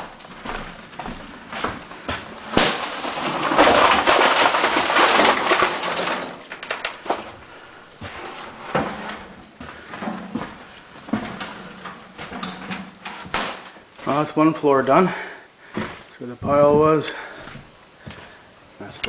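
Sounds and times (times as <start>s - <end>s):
debris crashing into metal truck bed: 2.4s - 7.3s.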